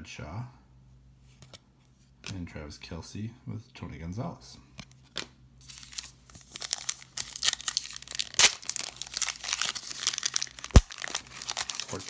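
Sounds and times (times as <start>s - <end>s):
foil wrapper tearing and crinkling: 5.6s - 12.0s.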